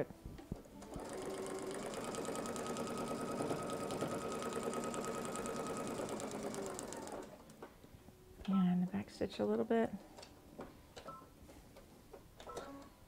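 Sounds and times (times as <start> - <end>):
sewing machine stitching: 0.8 - 7.4.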